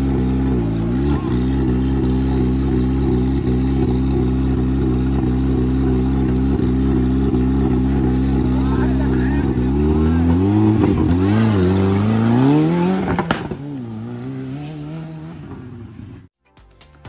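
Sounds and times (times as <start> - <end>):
buggy engine idling: 0.0 - 12.4.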